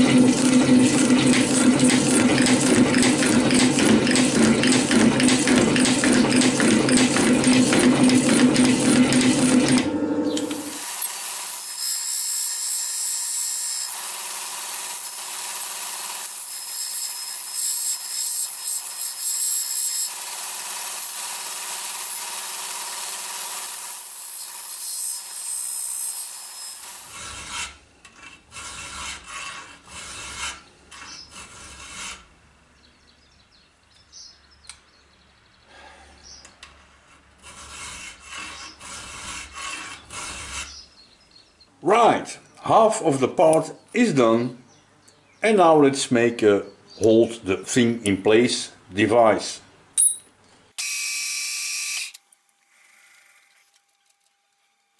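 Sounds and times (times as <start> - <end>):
belt grinder sanding steel: 10.3 - 32.3, 37.1 - 40.9
hand file rasping metal: 10.4 - 32.3, 36.9 - 40.9.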